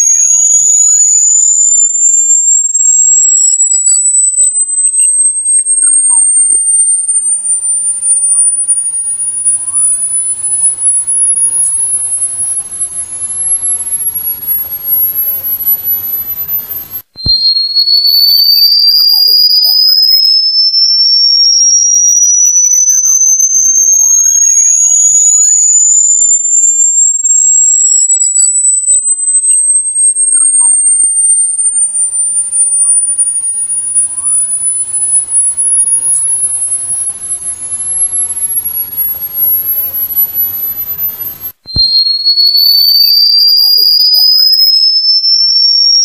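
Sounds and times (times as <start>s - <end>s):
rising electronic whistle: 0.0s - 46.0s
shrill electronic tone: 0.0s - 46.0s
light hiss: 7.3s - 18.0s, 31.9s - 44.6s.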